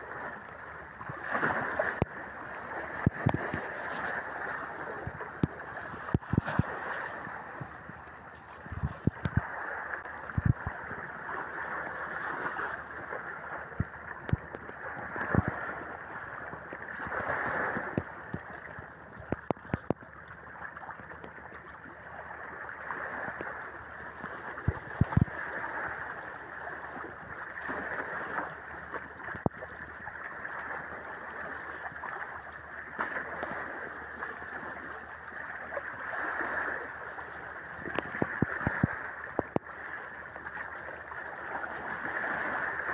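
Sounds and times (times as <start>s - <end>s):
surf washing over shore: 0.0s - 16.1s, 17.0s - 18.5s
sharp knocks or splashes: 5.0s - 7.7s.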